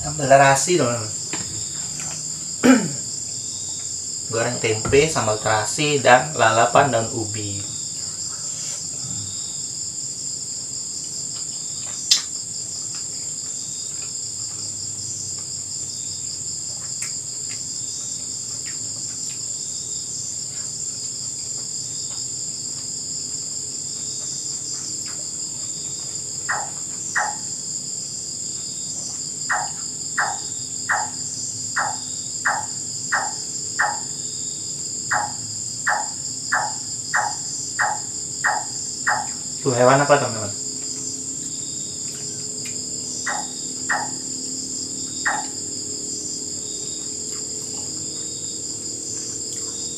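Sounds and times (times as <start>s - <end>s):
crickets and insects chirping: 0.0s - 49.9s
single sharp click: 12.1s - 12.3s.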